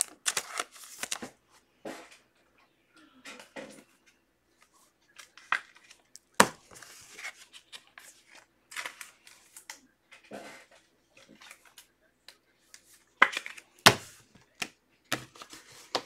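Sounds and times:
card pack wrappers crinkling: 0.0 - 1.3
cards rustling: 0.0 - 1.4, 4.0 - 16.0.

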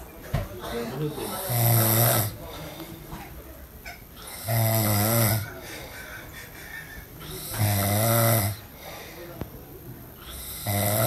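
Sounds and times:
man snoring: 1.0 - 2.4, 4.2 - 5.6, 7.2 - 8.7, 10.2 - 11.0.

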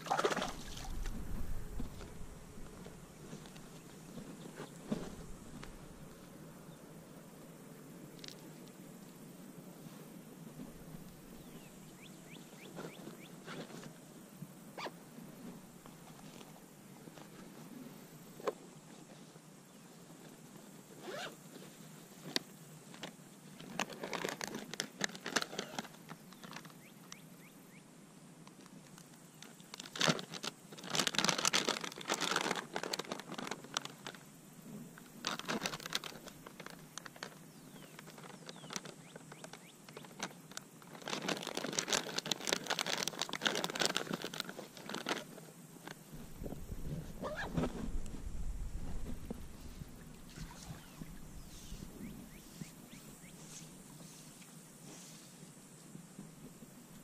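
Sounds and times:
nylon fabric and plastic rustling: 0.0 - 6.4, 20.1 - 26.8, 28.6 - 55.4
zipper: 21.0 - 21.4, 46.8 - 48.0.

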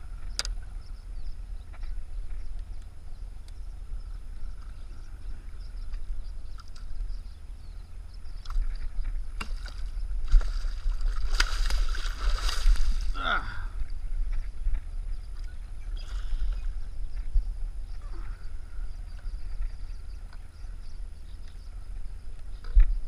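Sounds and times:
low steady rumble: 0.0 - 23.0
fish splashing at surface: 9.6 - 13.1.

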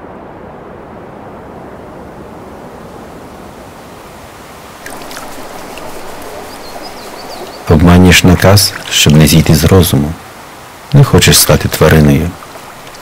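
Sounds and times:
outdoor noise: 0.0 - 13.0
water splashing and dripping: 4.4 - 10.0, 11.7 - 13.0.

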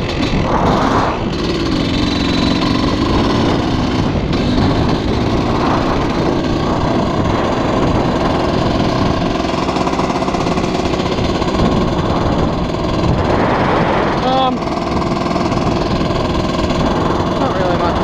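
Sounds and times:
dirt bike engine running: 0.0 - 18.0
wind rumble on microphone: 0.0 - 18.0.

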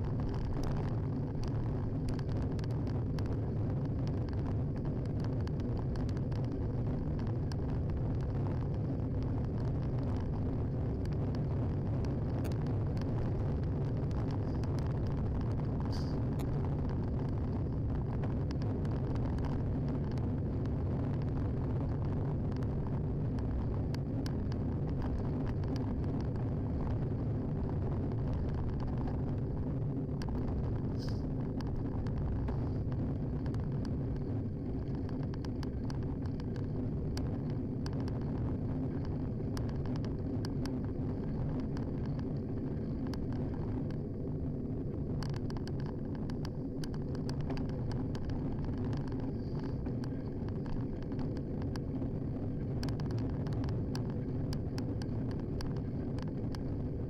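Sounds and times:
wind on microphone: 0.0 - 57.0
bicycle clicks and rattles: 45.1 - 57.0.

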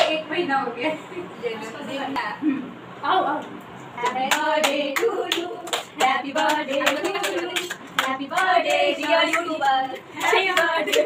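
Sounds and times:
young women singing together: 0.0 - 0.9, 4.0 - 11.0
hands clapping in steady beat: 4.0 - 11.0.

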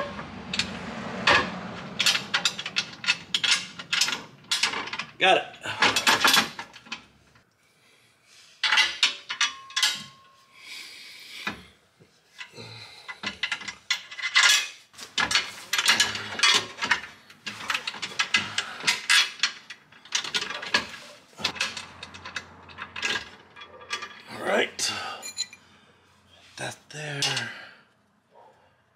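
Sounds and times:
metal bolts clinking: 0.0 - 7.1, 8.6 - 10.4, 13.1 - 25.6.

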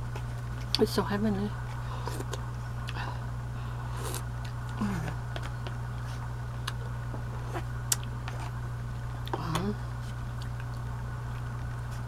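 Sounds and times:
low electrical hum: 0.0 - 12.0
person chewing: 10.3 - 12.0.

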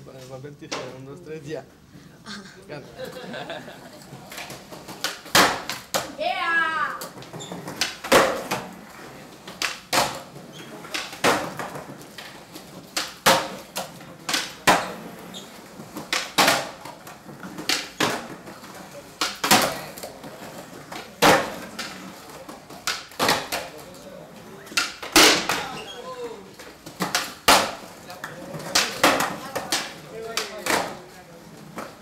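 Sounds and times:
skateboards clacking on hard floor: 4.0 - 32.0.

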